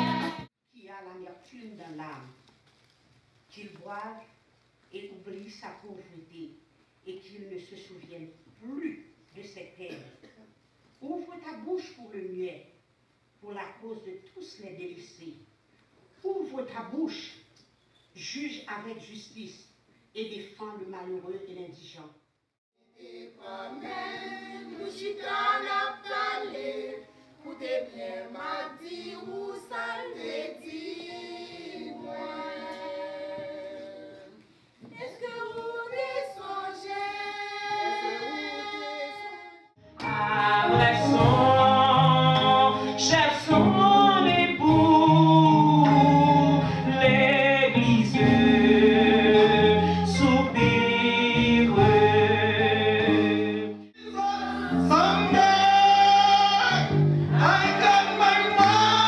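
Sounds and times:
women's choir singing a hymn: 0.0 - 0.5, 23.0 - 44.6, 48.2 - 53.8, 54.4 - 59.0.

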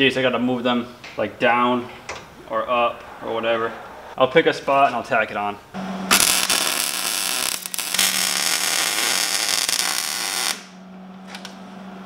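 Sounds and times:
welding arc crackling sizzle: 5.8 - 10.8.

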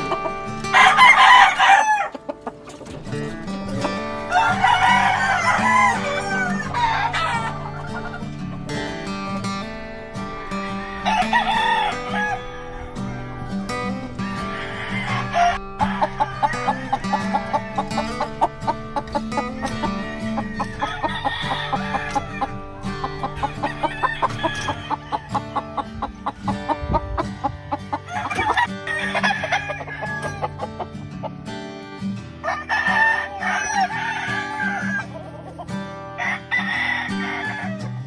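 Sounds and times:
roosters crowing: 0.0 - 31.3, 32.4 - 38.0
guitar music with beat: 0.0 - 38.0.

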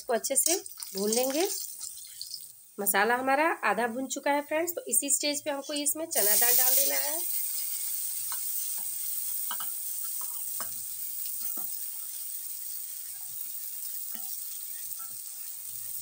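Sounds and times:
food sizzling in hot oil: 0.0 - 3.0, 5.8 - 16.0
metal spoon scraping and tapping: 0.4 - 2.5, 8.3 - 8.9, 9.5 - 10.8, 14.1 - 14.4.

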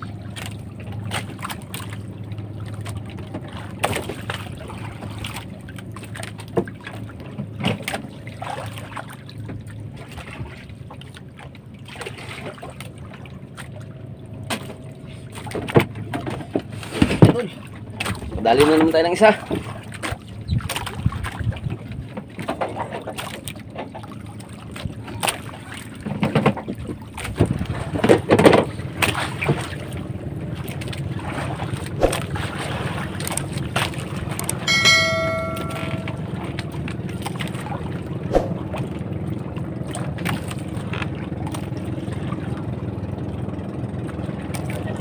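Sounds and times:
boat engine humming: 0.0 - 18.4, 19.1 - 45.0
knocks and thuds on boat: 2.7 - 8.6, 14.4 - 24.2, 24.8 - 29.8
brief high ringing tone: 34.7 - 36.3.

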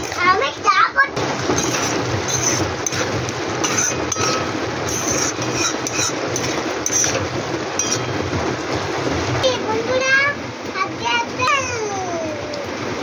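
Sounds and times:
curry sizzling and bubbling: 0.0 - 13.0
metal ladle scraping pan: 1.4 - 8.4.

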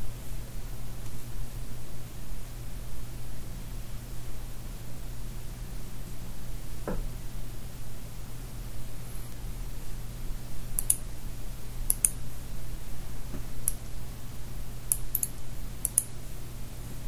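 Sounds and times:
low electrical hum and hiss: 0.0 - 17.0
computer mouse button clicking: 10.8 - 11.0, 14.9 - 16.1.

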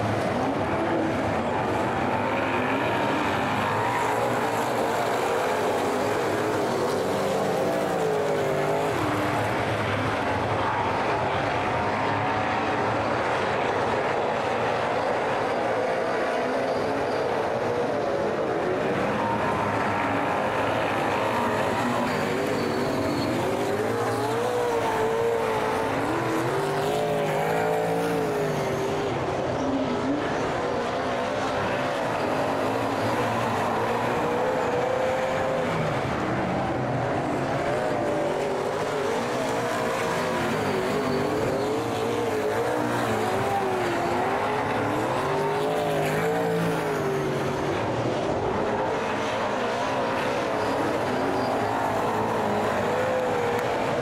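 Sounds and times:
race car engines revving: 0.0 - 54.0.

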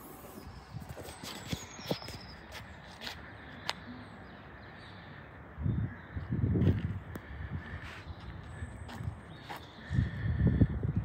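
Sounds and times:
faint birdsong: 0.0 - 11.0
soft footsteps on tarmac: 0.8 - 4.1, 6.2 - 10.2.

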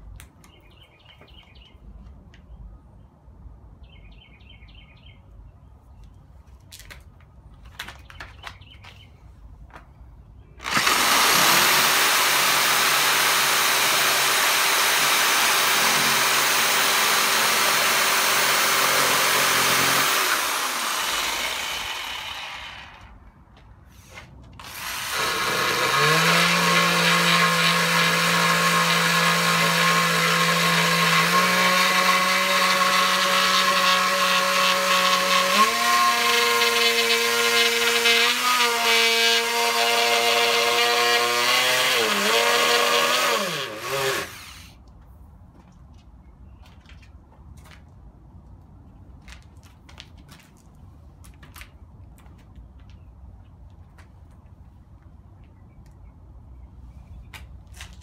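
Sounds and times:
reciprocating saw cutting wood: 10.6 - 23.2, 24.6 - 44.8.

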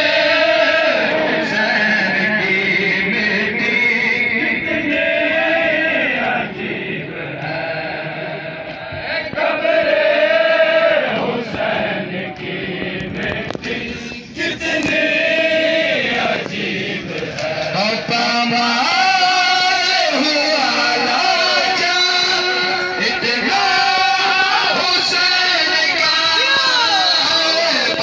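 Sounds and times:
men chanting a lament: 0.0 - 28.0.

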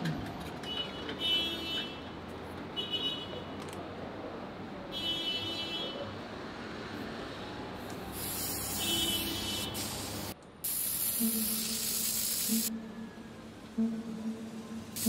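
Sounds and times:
spray paint can hissing: 8.1 - 12.7.

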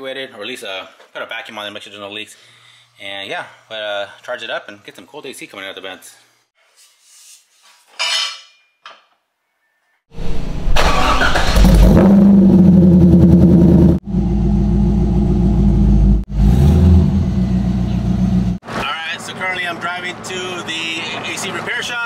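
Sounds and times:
car engine starting and revving: 10.6 - 18.6.

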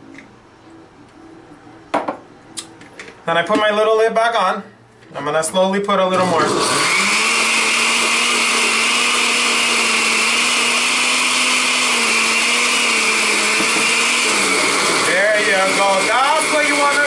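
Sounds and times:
blender motor whining: 6.2 - 17.0.

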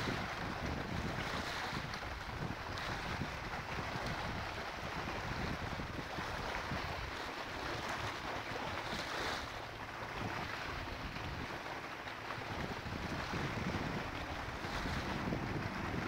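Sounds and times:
water lapping against rocky shore: 0.0 - 16.0
wind buffeting microphone: 0.0 - 16.0.

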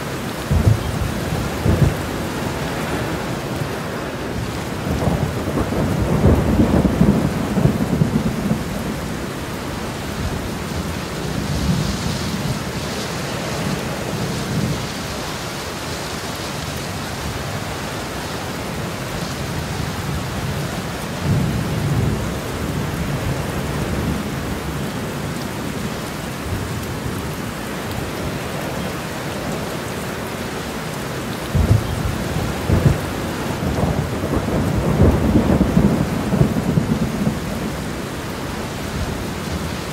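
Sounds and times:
steady rain: 0.0 - 39.9
thunder rumbling: 0.4 - 15.0, 31.4 - 39.9.

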